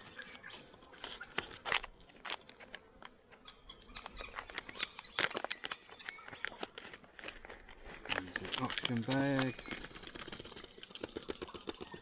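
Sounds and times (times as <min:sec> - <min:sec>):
foil pouch crinkling: 0:04.2 - 0:12.0.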